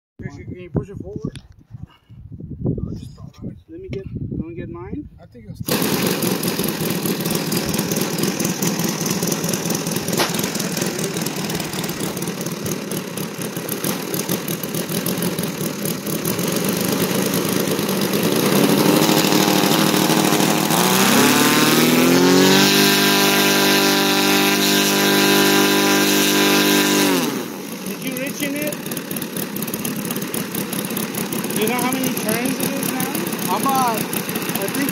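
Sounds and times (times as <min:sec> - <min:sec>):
model airplane engine revving: 0:05.7 - 0:34.9.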